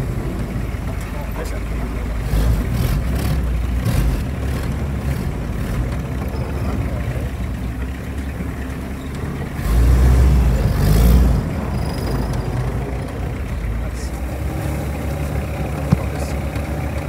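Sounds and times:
off-road vehicle engine running: 0.0s - 17.0s
vehicle body knocks and rattles: 15.7s - 17.0s.

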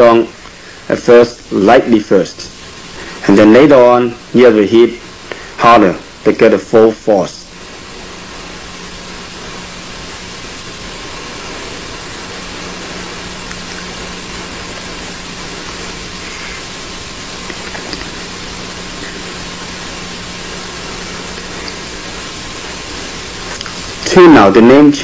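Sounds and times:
recording hiss with low hum: 0.0s - 25.0s.

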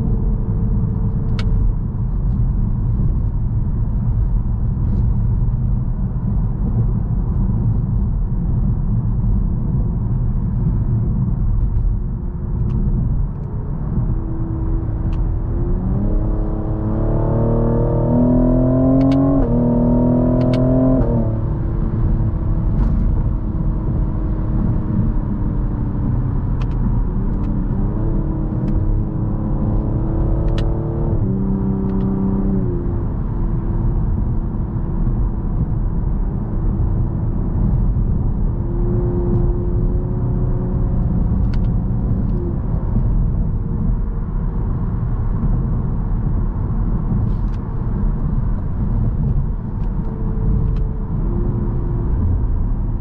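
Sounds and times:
road rumble: 0.0s - 53.0s
car engine accelerating: 11.1s - 53.0s.

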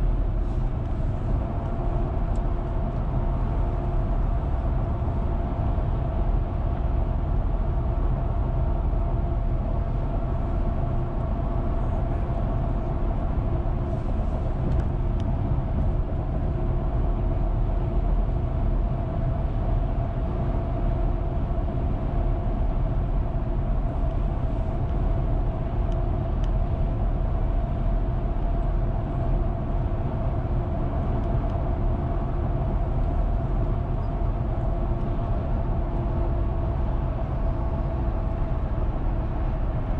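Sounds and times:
car engine hum: 0.0s - 39.9s
road and tyre noise: 0.0s - 39.9s.

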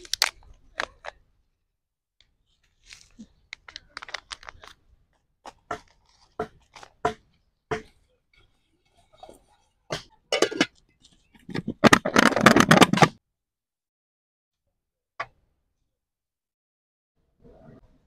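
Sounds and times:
food crunching and scratching: 5.5s - 7.0s.

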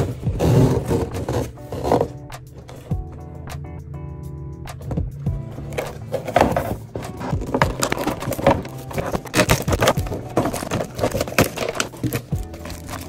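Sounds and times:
cardboard box being opened: 0.0s - 2.9s, 5.5s - 13.0s.

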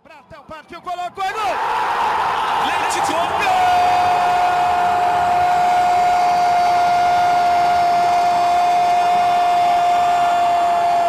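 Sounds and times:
commentator shouting goal: 2.6s - 4.3s.

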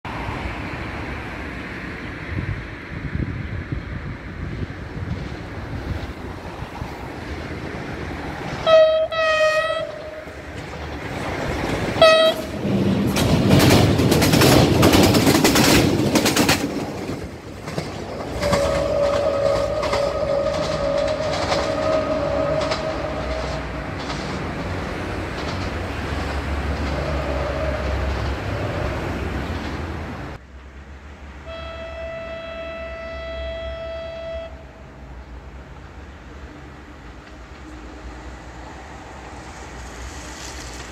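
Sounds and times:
train clattering over rails: 4.0s - 30.8s, 35.0s - 40.9s
train horn blasts: 8.6s - 10.3s, 12.0s - 12.6s, 18.4s - 23.8s, 31.4s - 35.0s.

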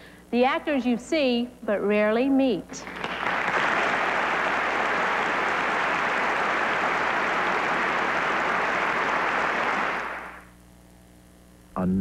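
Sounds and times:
audience applauding: 2.8s - 10.5s.

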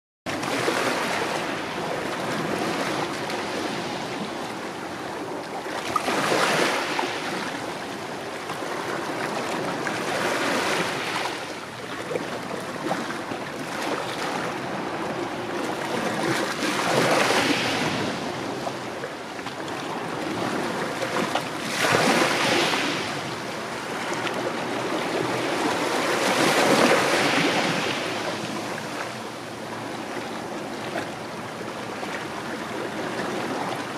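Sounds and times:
waves washing on gravelly shore: 10.0s - 11.5s, 16.0s - 18.6s, 21.5s - 29.0s.

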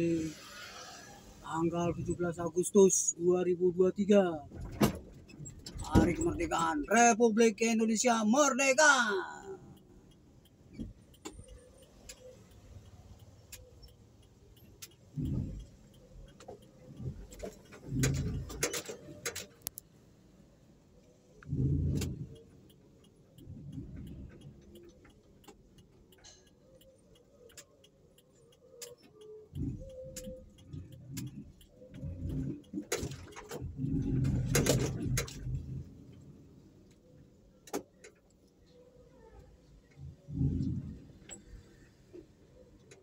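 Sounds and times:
dull rumbles and thumps over road: 1.4s - 7.4s, 14.8s - 19.8s, 21.4s - 26.2s, 29.4s - 38.4s, 40.0s - 43.0s
car driving slowly from inside: 9.6s - 43.0s
small clicks and rattles: 9.7s - 20.0s, 21.0s - 43.0s.

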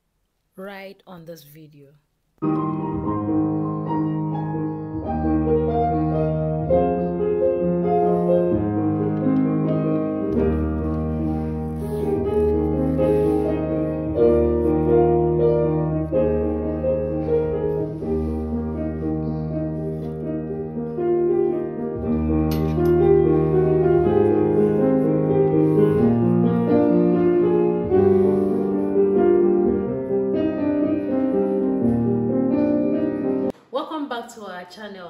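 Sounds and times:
piano chords: 2.4s - 33.5s.

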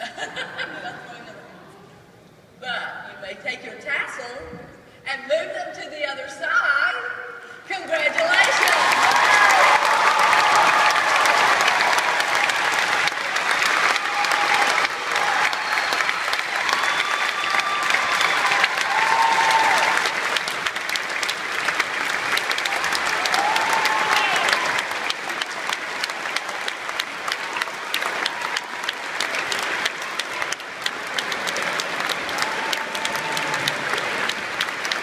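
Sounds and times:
large crowd applauding: 7.9s - 35.0s.

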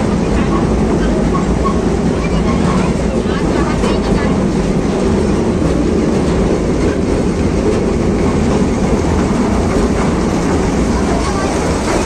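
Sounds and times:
ride train wheels and motor rumble: 0.0s - 12.0s.

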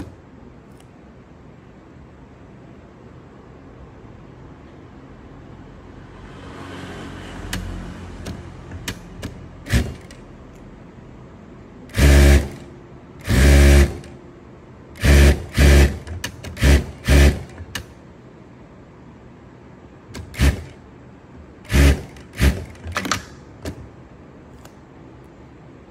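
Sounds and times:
sewing machine stitching bursts: 8.2s - 10.2s, 11.9s - 14.2s, 15.0s - 17.9s, 20.2s - 20.8s, 21.6s - 23.2s.

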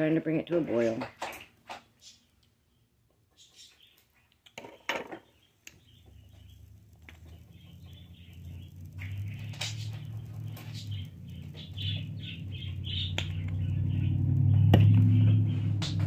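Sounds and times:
steady low hum: 5.6s - 16.0s.

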